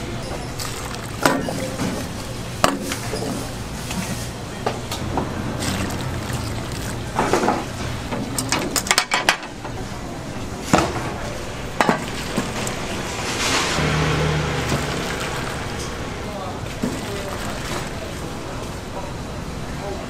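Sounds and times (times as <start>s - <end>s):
broth splashing: 0.0s - 8.4s, 11.6s - 19.1s.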